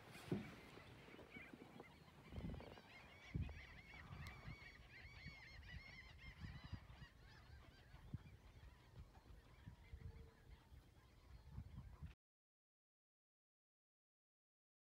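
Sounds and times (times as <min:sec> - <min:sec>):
distant flock of birds calling: 0:00.0 - 0:11.8.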